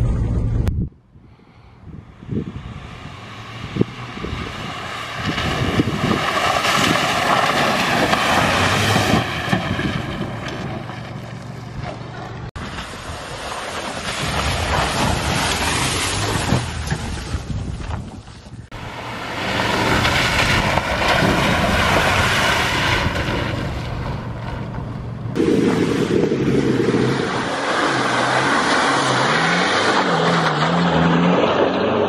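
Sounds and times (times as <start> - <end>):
wind buffeting microphone: 1.8 - 11.0, 16.2 - 24.2, 25.4 - 27.6
engine revving: 2.2 - 12.5, 18.7 - 32.0
water and mud splashing: 3.5 - 24.7, 25.3 - 31.6.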